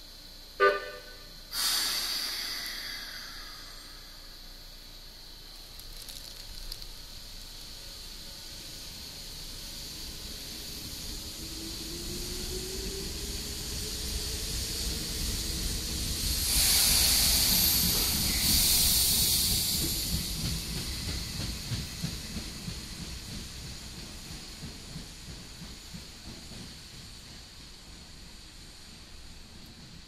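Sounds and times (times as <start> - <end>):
train wheels rumbling on rail: 0.0 - 30.0
loud hissing rush of passing cars: 0.4 - 5.7, 6.8 - 21.0.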